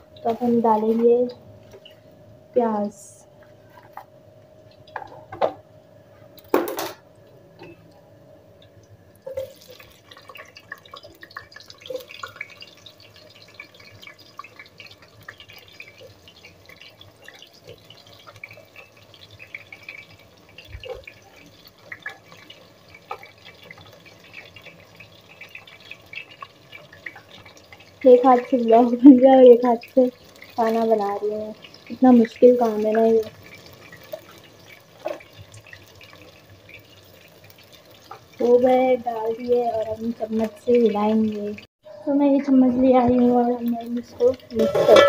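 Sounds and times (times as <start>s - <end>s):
onions sizzling in oil: 0.0s - 5.4s, 8.4s - 45.0s
knife and plate knocking pot: 44.6s - 45.0s.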